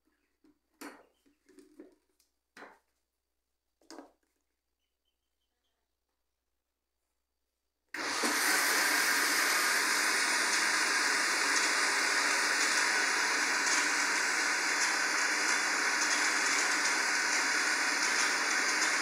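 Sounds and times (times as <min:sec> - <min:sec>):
blender running: 0:08.0 - 0:19.0.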